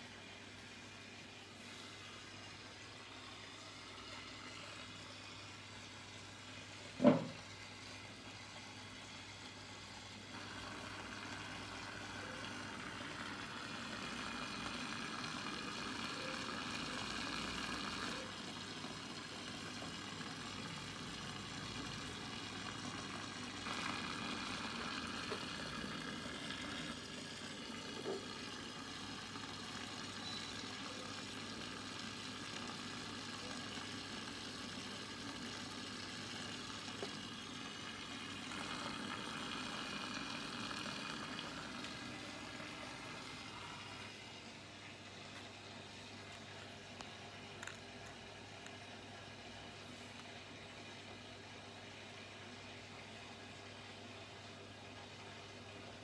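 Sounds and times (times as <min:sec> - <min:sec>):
pump electric hum: 0:00.0 - 0:56.0
fizzing water and air bubbles: 0:10.4 - 0:44.2.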